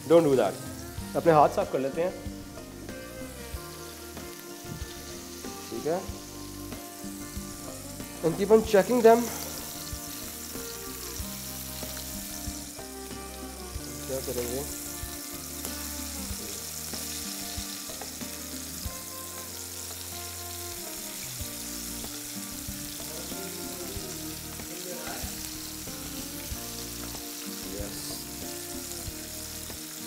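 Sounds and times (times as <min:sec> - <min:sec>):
chicken wings sizzling in oil: 0:00.0 - 0:30.0.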